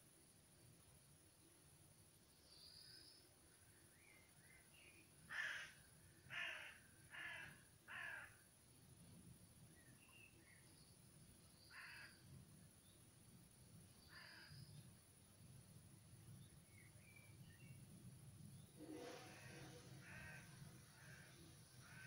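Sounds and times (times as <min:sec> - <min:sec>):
small birds chirping: 0:09.6 - 0:18.8
bird harsh calls: 0:18.8 - 0:22.0.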